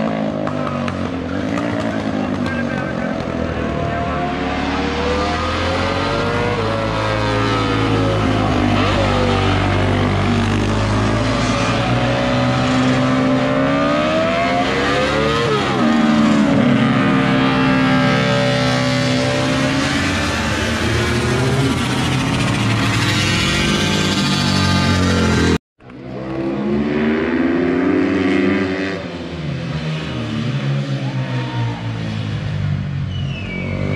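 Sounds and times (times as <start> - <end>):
motorcycle engines revving: 0.0 - 33.9.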